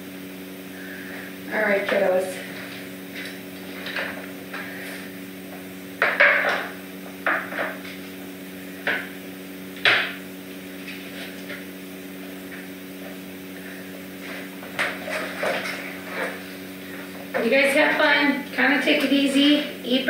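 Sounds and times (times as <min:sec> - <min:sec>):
steady low hum: 0:00.0 - 0:20.0
hard objects knocking: 0:06.0 - 0:07.8.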